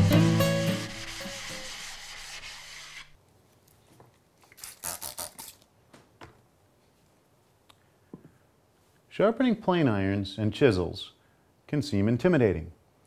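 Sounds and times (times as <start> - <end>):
plane iron scrubbing on waterstone: 0.6 - 3.1
spray bottle squirts: 4.5 - 5.6.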